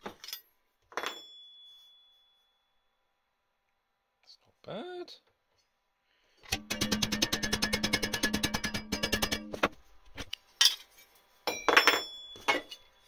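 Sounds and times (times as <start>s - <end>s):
bench vise rattling: 6.5s - 9.8s
metal clinks: 11.5s - 13.0s.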